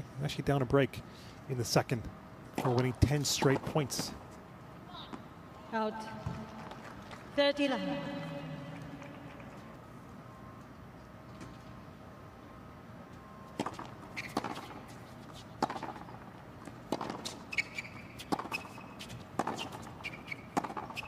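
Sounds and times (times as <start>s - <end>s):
racket striking tennis ball: 13.6s - 15.0s, 15.6s - 21.0s
sneaker squeaks on court: 14.1s - 14.8s, 17.0s - 21.0s.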